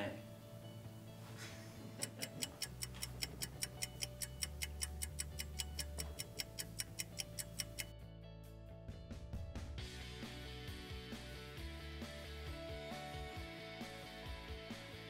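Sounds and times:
low music bed: 0:00.0 - 0:15.0
fast clock ticking: 0:02.0 - 0:07.9.

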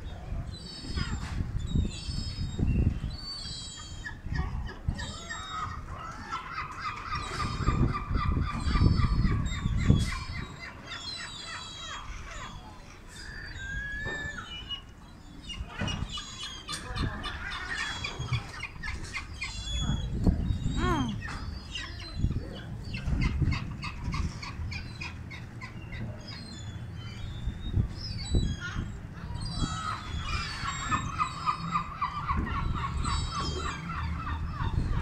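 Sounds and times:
gulls calling: 0:00.0 - 0:35.0
high chirping calls: 0:06.9 - 0:35.0.

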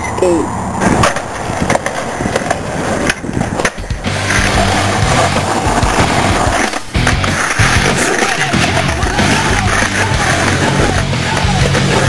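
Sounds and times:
skateboard wheels rolling: 0:00.1 - 0:12.0
skateboard knocking on pavement: 0:00.8 - 0:12.0
background music: 0:03.8 - 0:12.0.

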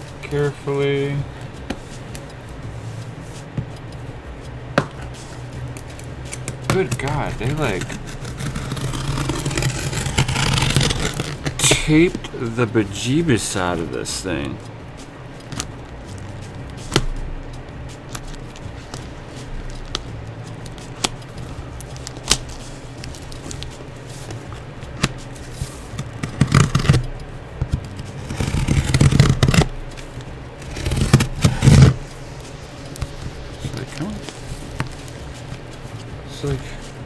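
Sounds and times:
knife cutting through tape: 0:06.0 - 0:11.8, 0:25.0 - 0:27.2, 0:27.8 - 0:32.1.

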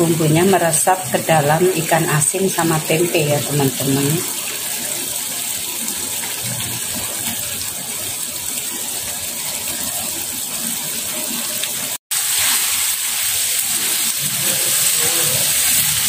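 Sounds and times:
sauce simmering in a frying pan: 0:03.8 - 0:16.0.

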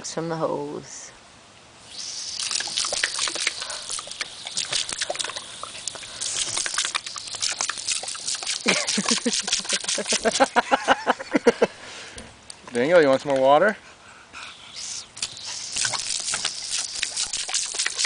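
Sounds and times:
garden hose spraying: 0:01.8 - 0:11.2, 0:14.6 - 0:18.0
water splashing: 0:01.9 - 0:10.7, 0:15.1 - 0:18.0.

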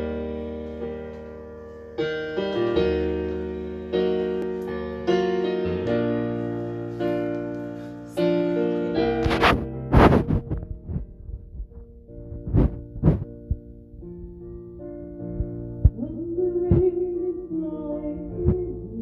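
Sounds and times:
slow piano chords: 0:00.0 - 0:19.0.

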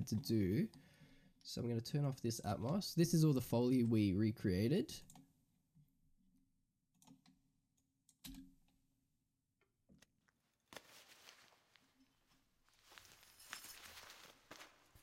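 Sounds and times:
quiet rustling and scuffing: 0:10.7 - 0:15.0.

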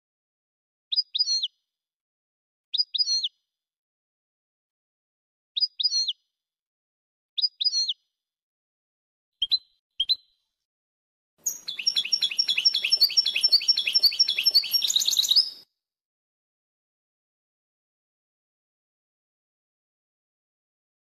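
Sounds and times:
goldfinch song: 0:11.4 - 0:15.7.

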